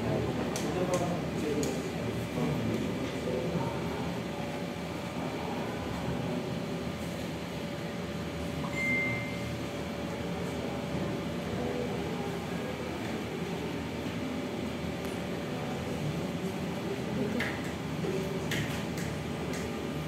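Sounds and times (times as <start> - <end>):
fan hum: 0.0 - 20.0
brief high tone: 8.6 - 9.5.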